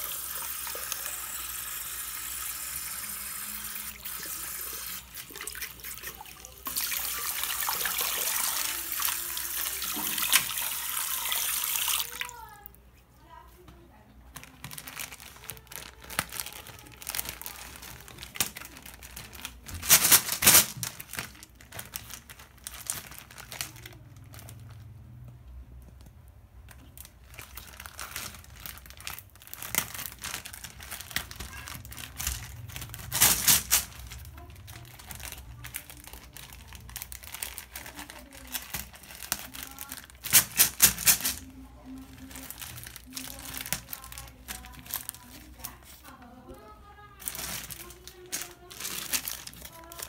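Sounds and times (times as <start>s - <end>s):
plastic bags crinkling: 14.2s - 25.1s, 26.6s - 50.0s.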